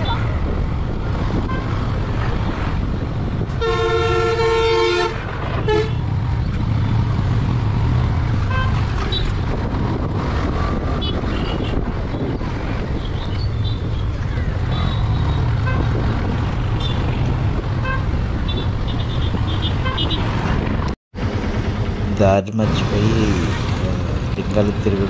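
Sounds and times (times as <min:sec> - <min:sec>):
wind: 0:00.0 - 0:25.0
vehicle horn honking: 0:03.6 - 0:06.0.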